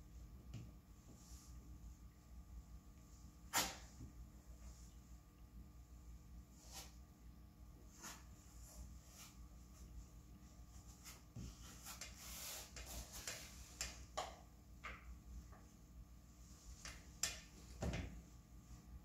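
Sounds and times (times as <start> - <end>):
rubbing scrape: 10.8 - 13.8.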